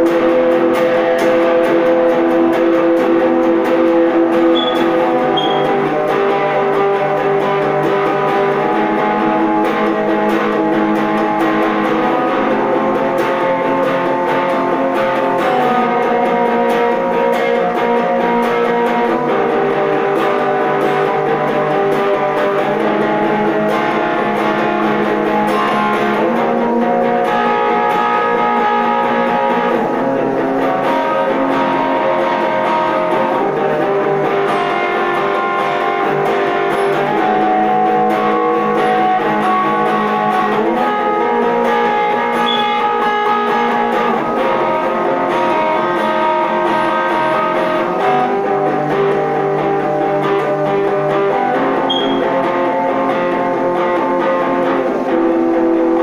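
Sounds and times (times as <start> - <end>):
electric guitar played slowly: 0.0 - 56.0.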